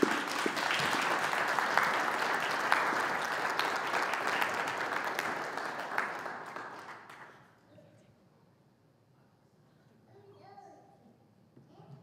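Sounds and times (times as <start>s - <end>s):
crowd applauding: 0.0s - 7.5s.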